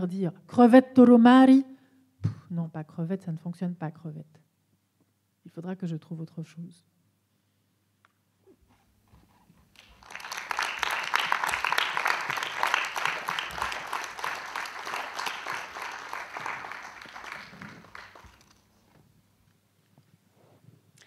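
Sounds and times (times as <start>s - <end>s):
audience applause: 9.8s - 18.6s.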